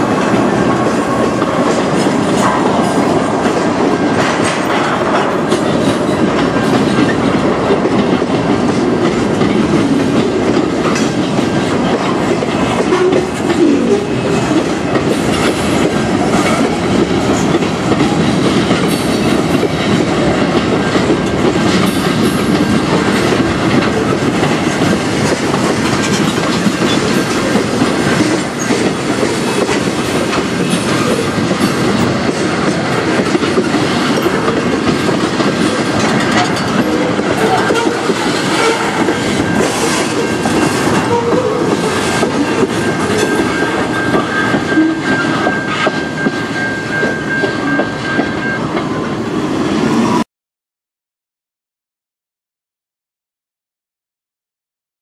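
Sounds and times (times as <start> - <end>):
wheels clicking over rail joints: 0.0 - 48.3
train wheels rumbling on rails: 0.0 - 50.2.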